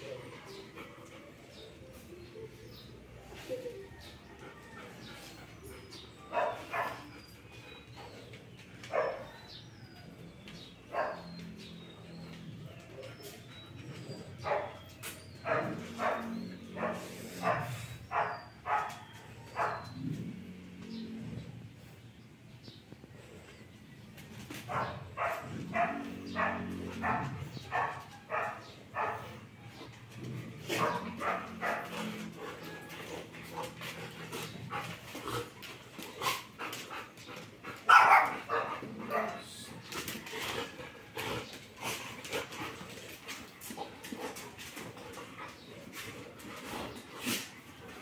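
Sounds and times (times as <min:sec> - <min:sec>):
dogs growling: 0:00.0 - 0:48.0
dogs barking: 0:04.9 - 0:21.2, 0:24.5 - 0:35.6, 0:36.2 - 0:42.8.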